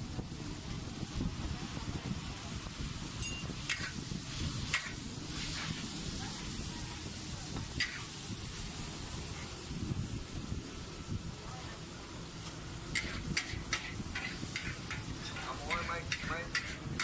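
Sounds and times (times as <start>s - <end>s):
frying sizzle: 0.0s - 17.0s
metal spatula scraping wok: 3.6s - 6.0s, 7.7s - 8.2s, 12.9s - 17.0s.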